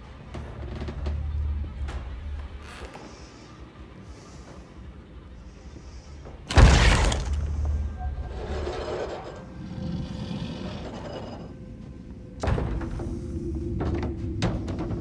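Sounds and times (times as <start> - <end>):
deep rumble: 6.5 - 15.0.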